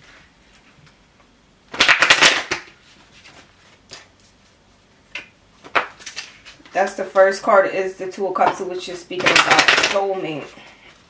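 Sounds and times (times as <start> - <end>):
cards shuffling: 1.7 - 4.4, 5.6 - 7.2, 9.2 - 10.4.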